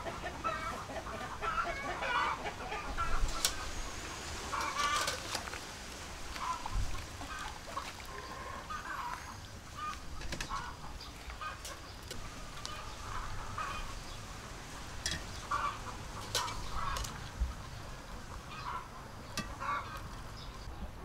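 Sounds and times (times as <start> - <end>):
chickens clucking: 0.0 - 20.9.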